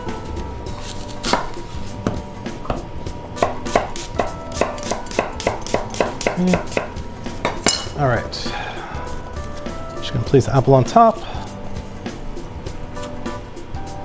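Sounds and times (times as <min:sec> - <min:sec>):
knife slicing apple on cutting board: 0:00.8 - 0:02.8, 0:03.4 - 0:07.6.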